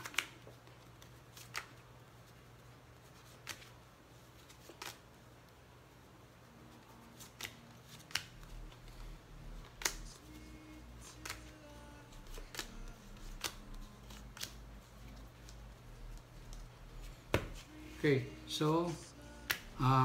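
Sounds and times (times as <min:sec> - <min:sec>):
playing cards clicking on table: 0:00.0 - 0:00.7, 0:07.2 - 0:08.5, 0:09.6 - 0:10.2, 0:11.0 - 0:11.6, 0:12.2 - 0:14.6, 0:19.4 - 0:19.7.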